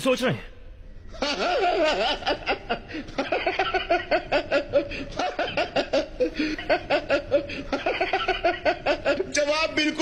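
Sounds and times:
man laughing heartily: 0:01.1 - 0:09.7.

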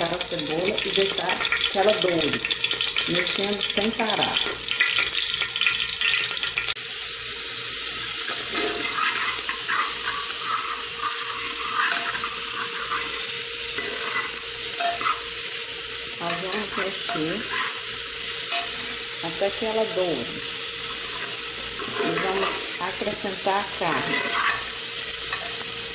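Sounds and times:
onion sizzling in oil: 0:00.0 - 0:25.9
spoon scraping pot: 0:08.5 - 0:17.9, 0:23.9 - 0:24.7.

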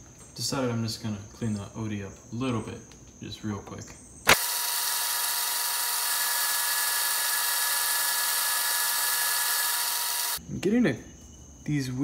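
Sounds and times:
two-tone machine whine: 0:04.3 - 0:10.4.

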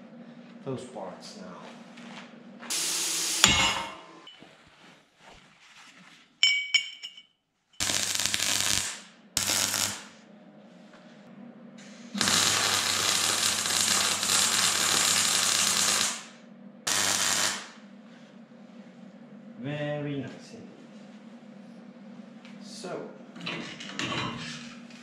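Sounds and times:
welding arc crackling and hissing: 0:02.6 - 0:03.9, 0:07.8 - 0:10.2, 0:12.1 - 0:17.8
welder humming: 0:02.6 - 0:04.3, 0:07.8 - 0:18.3
metal clinks: 0:06.4 - 0:07.3.

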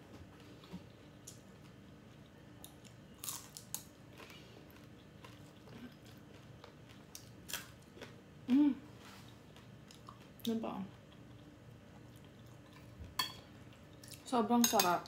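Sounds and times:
person chewing fried shrimp: 0:00.5 - 0:08.4, 0:11.0 - 0:13.0.

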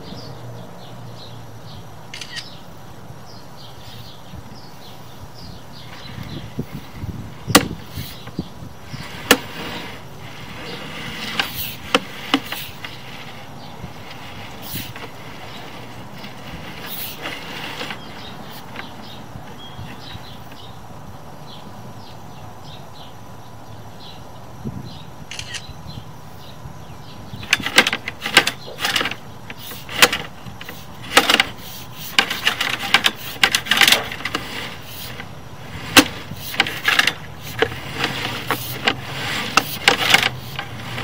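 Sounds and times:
outdoor background noise: 0:00.0 - 0:41.0
cable reel clicks and knocks: 0:07.5 - 0:08.4, 0:09.0 - 0:13.4, 0:27.4 - 0:41.0.

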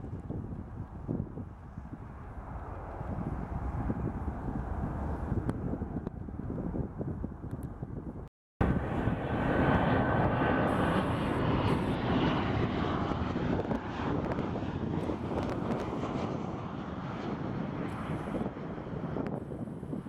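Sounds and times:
jet engines passing overhead: 0:00.0 - 0:20.0
steady engine whine: 0:08.6 - 0:20.0.

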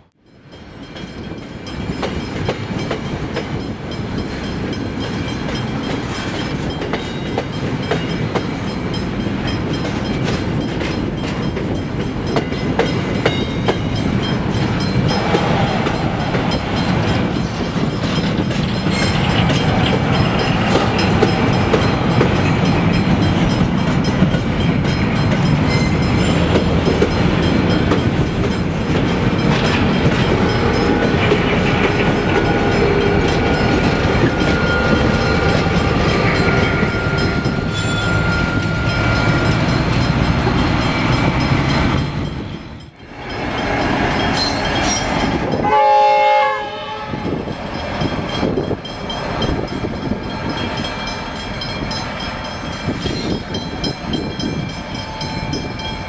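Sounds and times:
steel wheels clattering over rails: 0:00.8 - 0:45.7
high wheel squeal: 0:14.8 - 0:23.2, 0:25.6 - 0:26.7, 0:30.2 - 0:42.8.

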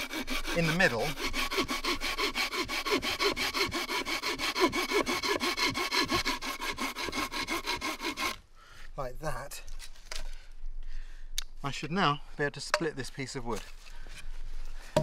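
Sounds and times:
saw cutting wood: 0:00.0 - 0:08.4.

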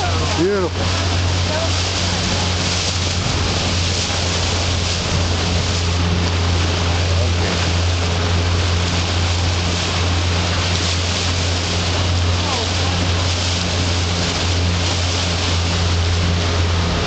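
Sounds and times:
boat motor running: 0:00.0 - 0:17.0
wind and sea hiss: 0:00.0 - 0:17.0.

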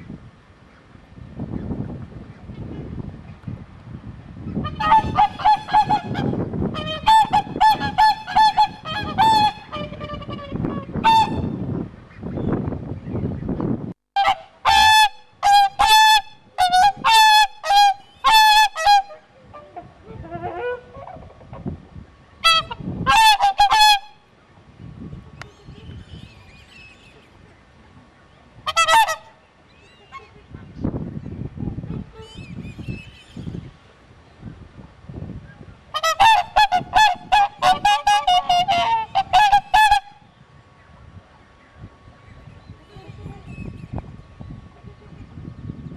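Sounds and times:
swans trumpeting: 0:04.6 - 0:11.5, 0:14.2 - 0:19.8, 0:22.4 - 0:24.2, 0:28.7 - 0:29.4, 0:35.9 - 0:40.3.

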